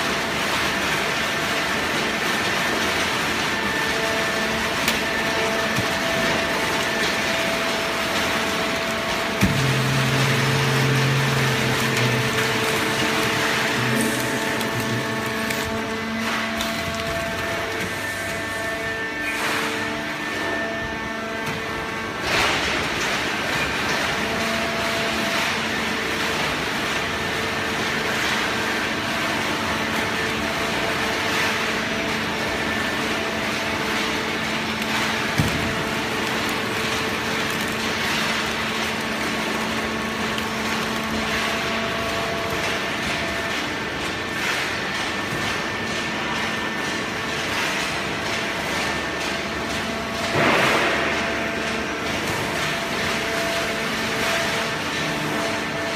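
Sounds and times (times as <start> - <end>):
machine hum with hydraulic whine: 0.0 - 55.9.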